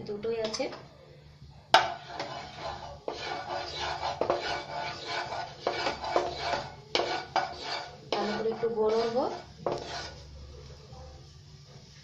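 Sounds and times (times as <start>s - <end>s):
spatula knocking on pan: 1.8s - 10.1s
wooden spatula scraping pan: 1.8s - 10.3s.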